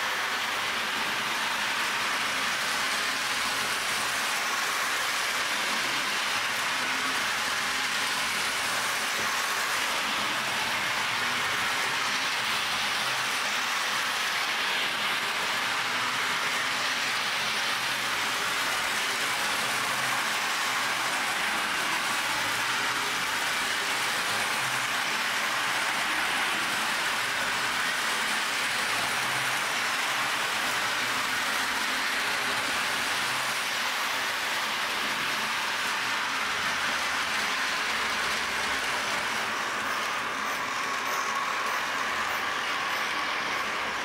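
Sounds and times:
model train running on track: 0.0 - 44.0.

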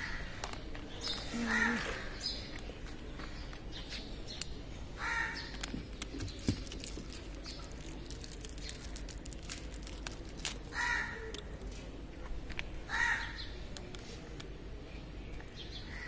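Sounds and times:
bird calling: 1.0 - 2.5
packaging clicks and rustling: 5.5 - 11.8.

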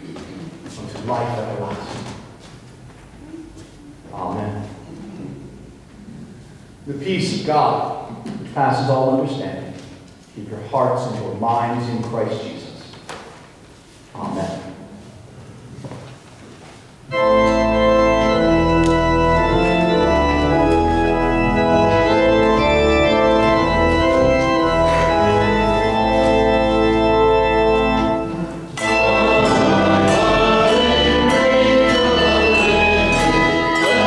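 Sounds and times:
church organ playing chords: 17.1 - 34.0.

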